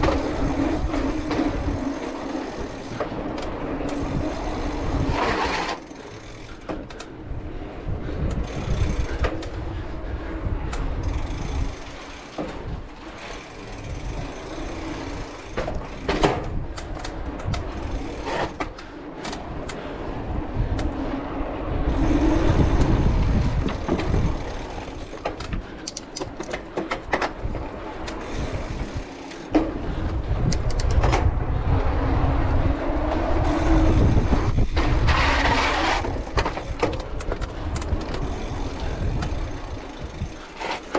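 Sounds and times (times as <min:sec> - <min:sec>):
wind buffeting microphone: 0:00.0 - 0:05.6, 0:06.5 - 0:40.9
bike rattling over stones: 0:08.4 - 0:09.6, 0:11.0 - 0:18.9, 0:21.9 - 0:31.4, 0:33.4 - 0:40.9.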